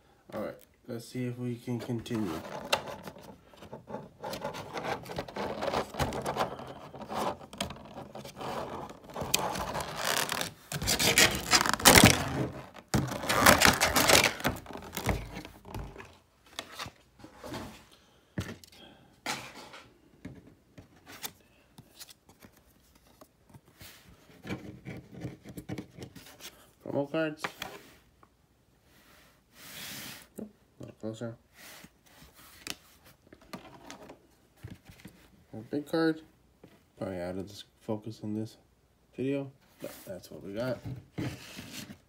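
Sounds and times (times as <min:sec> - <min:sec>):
plastic packaging crackling: 0:05.1 - 0:15.8.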